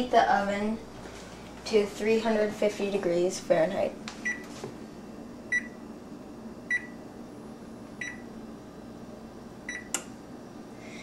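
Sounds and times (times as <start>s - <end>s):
oven control panel beeps: 4.2s - 4.5s, 5.5s - 5.8s, 6.7s - 7.0s, 8.0s - 8.3s, 9.7s - 10.0s.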